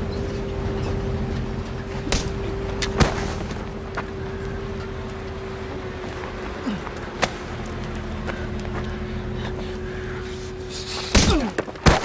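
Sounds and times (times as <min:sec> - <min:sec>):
low rumble with hum: 0:00.0 - 0:12.0.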